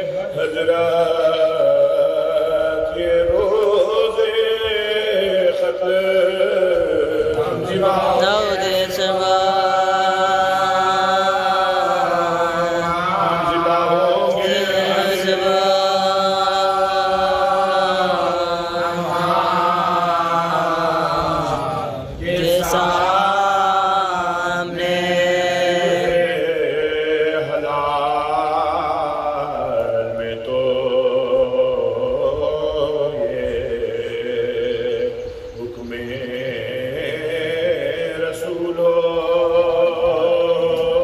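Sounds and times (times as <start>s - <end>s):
man chanting into microphone: 0.0s - 41.0s.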